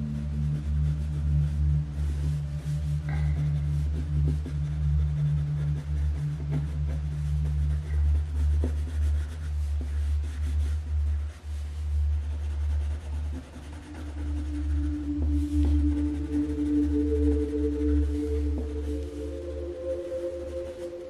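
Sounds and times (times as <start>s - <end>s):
background music with bass drone: 0.0s - 21.0s
marker scratching on paper: 5.1s - 15.8s.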